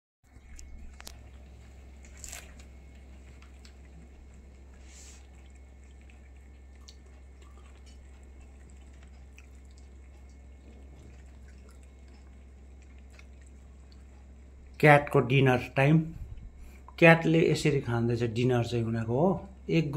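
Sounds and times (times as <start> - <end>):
cats chewing and licking: 0.3 - 15.2, 16.1 - 17.0
low steady hum: 0.3 - 19.9.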